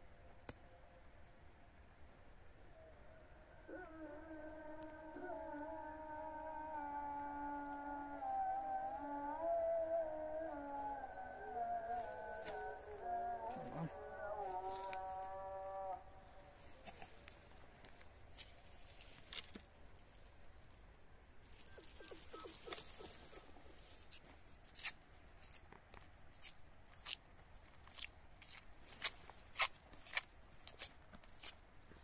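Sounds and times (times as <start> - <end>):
cling film crinkling: 21.4 - 24.9.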